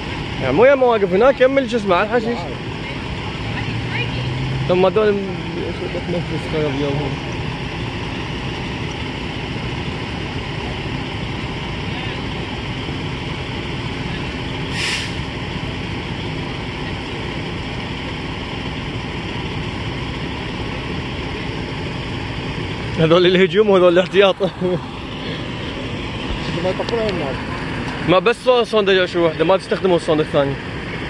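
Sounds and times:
fire engine droning: 0.0 - 31.0
short hiss: 14.7 - 15.3.

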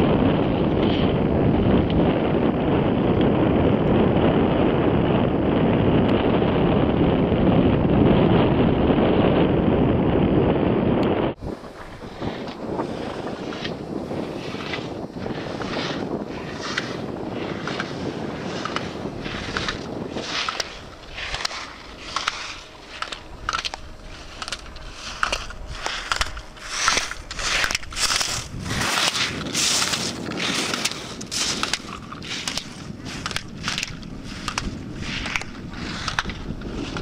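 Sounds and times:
wind on microphone: 0.0 - 37.0
skis scraping on hard snow: 11.7 - 37.0.

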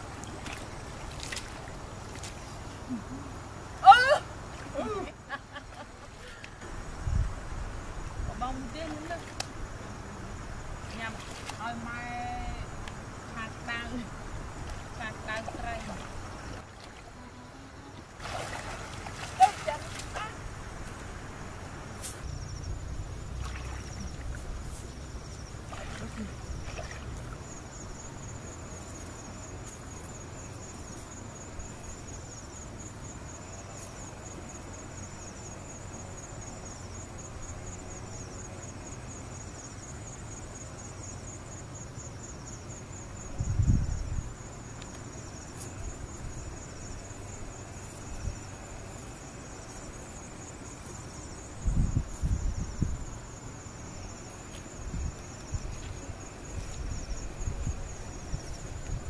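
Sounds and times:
insects trilling: 0.0 - 59.0
low background rumble: 11.7 - 33.4.

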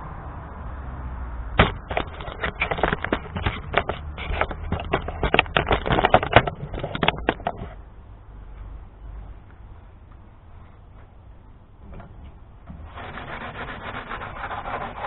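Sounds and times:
sandpaper scraping by hand: 12.8 - 15.0.

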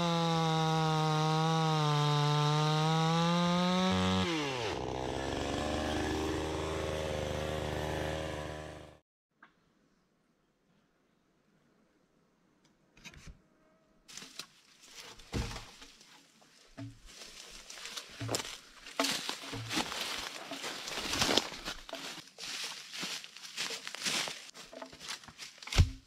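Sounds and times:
footsteps in undergrowth: 14.1 - 26.0
leaves and branches rustling: 14.1 - 26.0
log thumping: 15.0 - 26.0.

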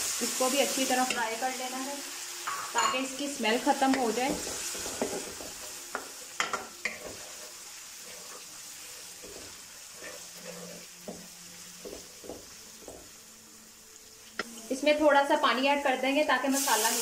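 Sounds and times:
onions sizzling in oil: 0.0 - 17.0
wooden spoon scraping pan: 6.9 - 10.9.

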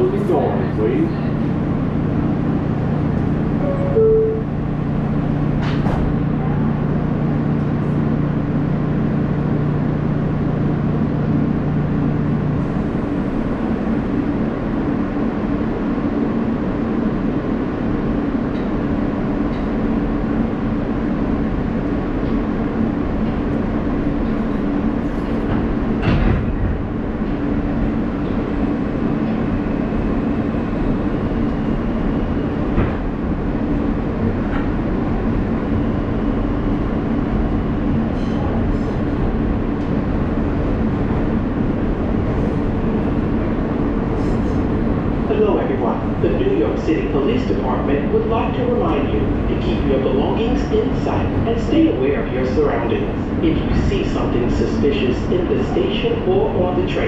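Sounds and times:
low hum: 0.0 - 5.7
train rumbling along track: 0.0 - 57.0
two-note falling door chime: 3.6 - 4.5.

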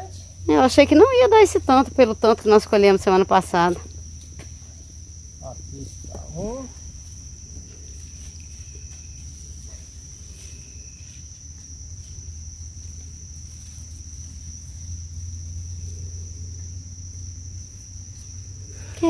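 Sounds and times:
crickets trilling: 0.0 - 19.0.

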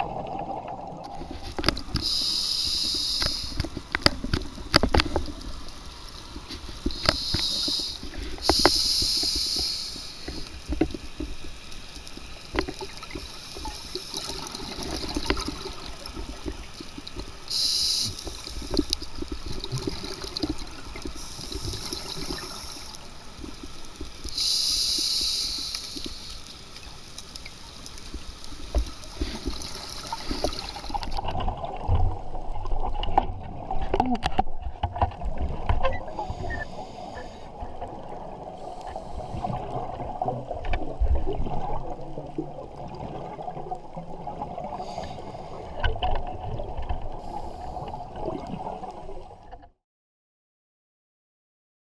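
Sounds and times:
water noise: 0.0 - 49.7
scuba regulator breathing: 1.1 - 4.4, 6.5 - 10.7, 17.4 - 23.6, 24.2 - 26.6, 36.0 - 37.7, 38.5 - 39.7, 44.7 - 45.8, 47.1 - 48.0.

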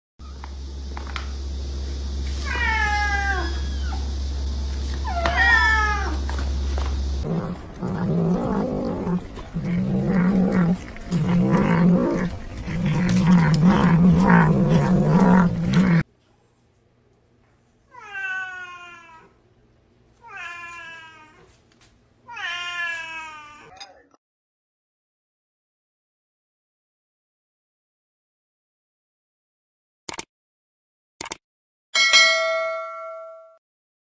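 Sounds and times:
cat meows: 2.4 - 4.0, 5.0 - 6.2, 17.9 - 19.4, 20.2 - 21.5, 22.3 - 23.8
cat yowling: 2.4 - 4.1, 5.0 - 6.2, 17.9 - 19.3, 22.3 - 23.8.

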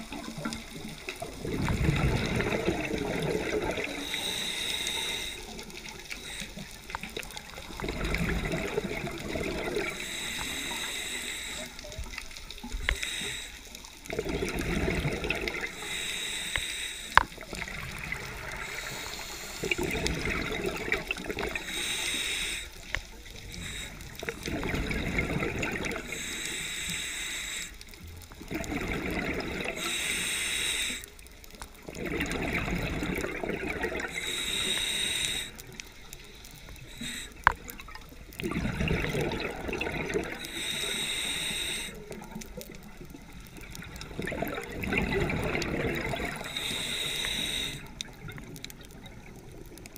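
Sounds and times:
bubbling exhale: 0.0 - 49.2
diver breathing through regulator: 1.7 - 7.0, 7.8 - 11.9, 12.7 - 17.4, 18.4 - 28.0, 28.7 - 31.2, 33.7 - 37.7, 39.1 - 42.2, 45.3 - 48.1.

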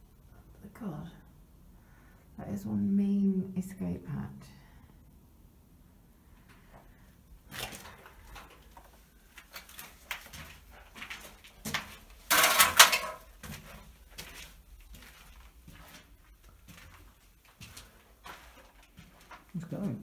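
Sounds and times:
footsteps on concrete: 13.3 - 20.0.

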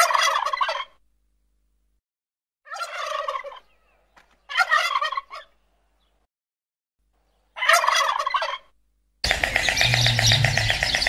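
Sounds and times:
bird rattling calls: 9.2 - 11.0.

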